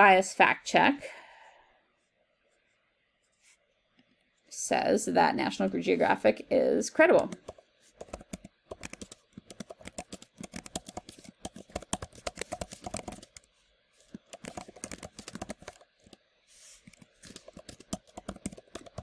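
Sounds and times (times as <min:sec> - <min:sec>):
computer keyboard typing: 0:07.2 - 0:13.5, 0:14.1 - 0:16.2, 0:16.8 - 0:19.0.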